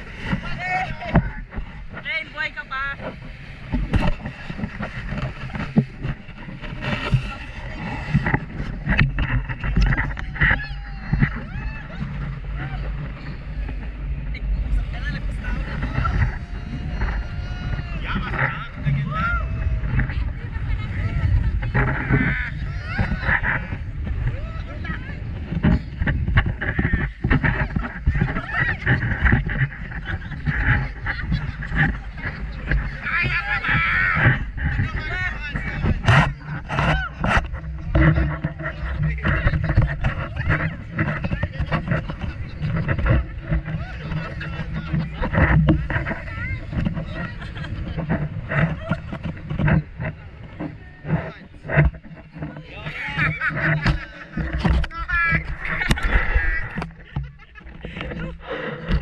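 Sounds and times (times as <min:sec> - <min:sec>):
low boat rumble: 0:00.0 - 0:59.0
wind and water rushing: 0:00.0 - 0:59.0
knocks and thumps: 0:03.0 - 0:07.4, 0:25.4 - 0:59.0
people shrieking and shouting: 0:09.9 - 0:13.7, 0:15.0 - 0:25.4.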